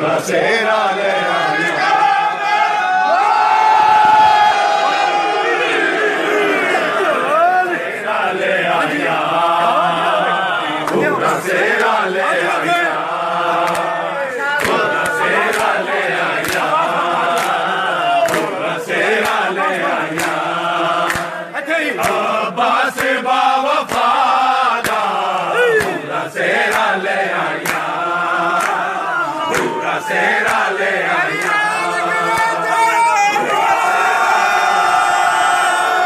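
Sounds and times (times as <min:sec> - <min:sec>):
crowd of men chanting: 0:00.0 - 0:36.0
hands clapping to a beat: 0:10.8 - 0:32.8.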